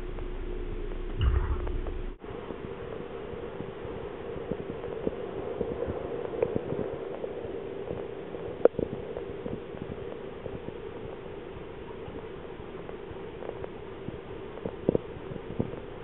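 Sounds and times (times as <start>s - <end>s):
steady mechanical hum: 0.0s - 16.0s
sharp knock: 1.2s - 2.0s.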